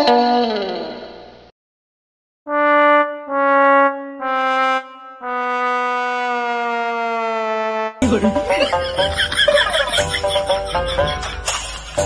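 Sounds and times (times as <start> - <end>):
sad trombone notes: 2.5 - 8.0
plucked string background music: 8.0 - 12.0.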